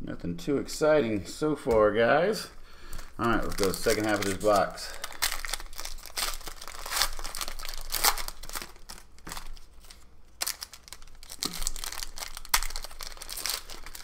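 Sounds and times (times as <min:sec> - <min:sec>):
plastic wrapper crinkling and tearing: 0:02.9 - 0:14.0.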